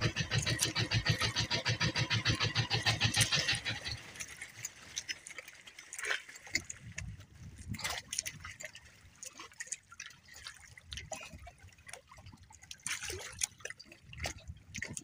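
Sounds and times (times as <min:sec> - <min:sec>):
small boat engine chugging: 0:00.0 - 0:08.7.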